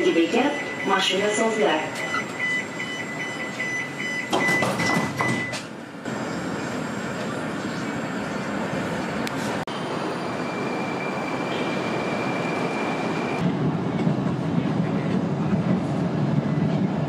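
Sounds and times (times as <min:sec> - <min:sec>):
wheels rumbling on rail: 0:00.0 - 0:17.0.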